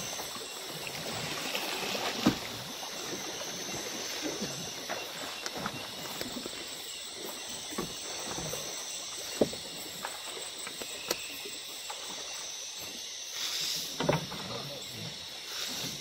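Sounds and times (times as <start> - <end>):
night insects chorus: 0.0 - 16.0
small water sounds: 0.0 - 16.0.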